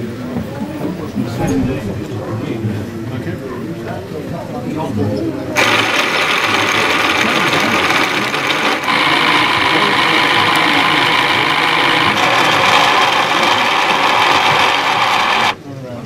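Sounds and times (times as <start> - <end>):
small electric motor whirring: 5.6 - 15.6.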